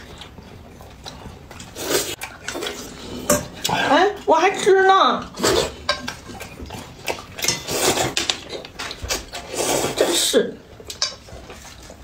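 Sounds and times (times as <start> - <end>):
quiet chewing: 0.0 - 3.9, 5.3 - 12.0
person slurping noodles: 1.8 - 3.9, 5.3 - 5.9, 7.4 - 8.2, 9.2 - 10.4.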